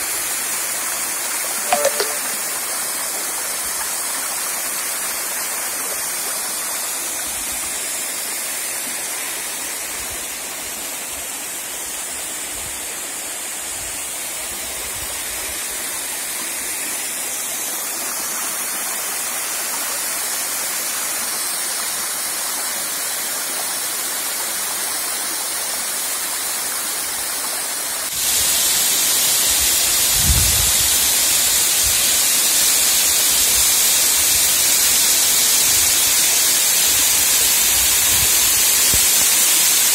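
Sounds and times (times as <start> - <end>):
waterfall splashing onto stones: 0.0 - 39.9.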